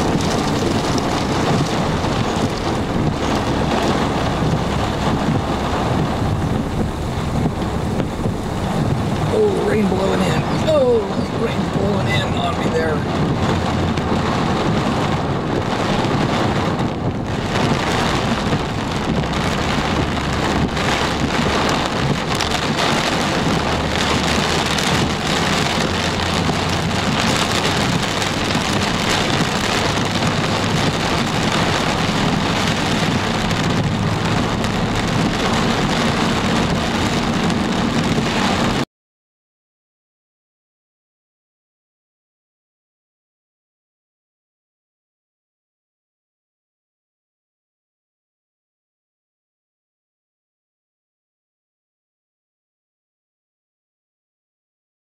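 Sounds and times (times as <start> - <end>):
car engine and tyres rumbling: 0.0 - 38.8
rain drumming on car roof: 0.0 - 38.8.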